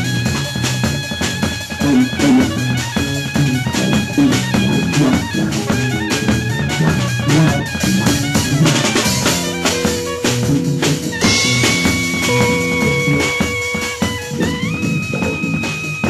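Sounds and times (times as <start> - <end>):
jazz ensemble playing: 0.0 - 16.0
long held notes: 0.0 - 16.0.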